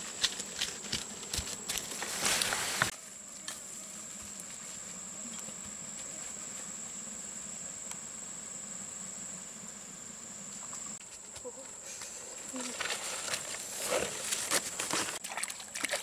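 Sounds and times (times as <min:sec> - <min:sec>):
footsteps crunching through dry leaves: 0:00.0 - 0:03.0.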